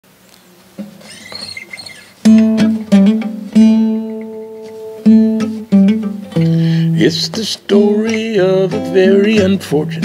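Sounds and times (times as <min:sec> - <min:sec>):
acoustic guitar chords strummed: 0:02.2 - 0:10.0.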